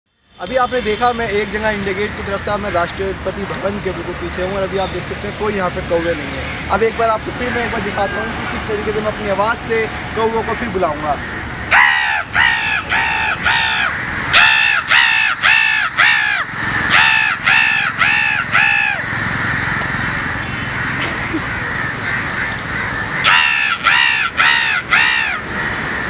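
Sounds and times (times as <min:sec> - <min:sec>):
man imitating crow caws: 0:10.3 - 0:20.1, 0:20.8 - 0:25.5.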